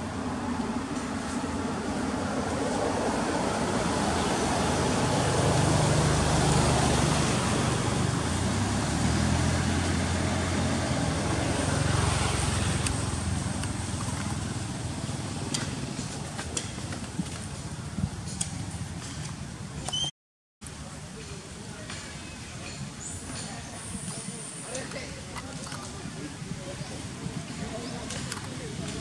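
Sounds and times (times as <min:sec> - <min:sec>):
vehicle engine rumble: 0:00.0 - 0:20.0.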